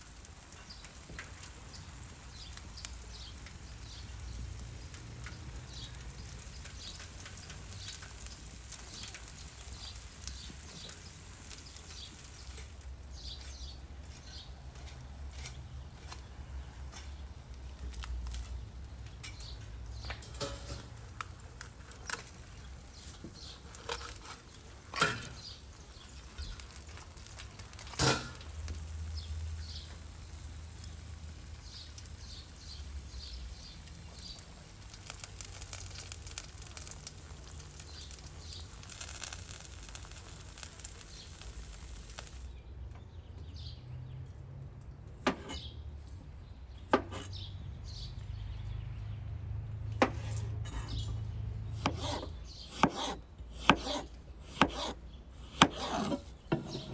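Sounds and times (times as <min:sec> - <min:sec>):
embers crackling: 0:00.0 - 0:45.0.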